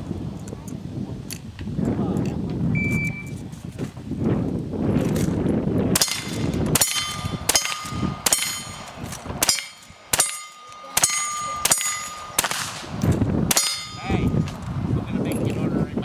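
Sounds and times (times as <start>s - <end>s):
gunshots: 5.9s - 14.0s
steel target ringing: 6.0s - 12.9s, 13.5s - 14.5s.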